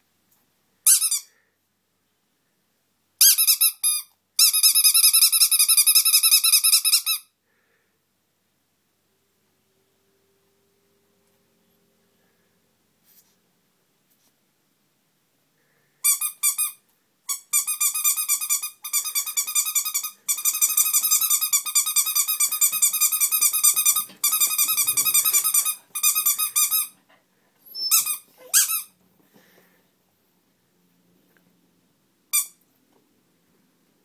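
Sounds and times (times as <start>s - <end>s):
rubber duck squeaking: 17.3s - 26.9s, 27.7s - 28.9s.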